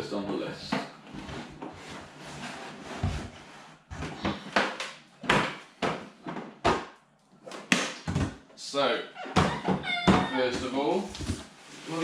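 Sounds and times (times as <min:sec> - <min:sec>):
cardboard and plastic rustling: 0:10.6 - 0:12.0.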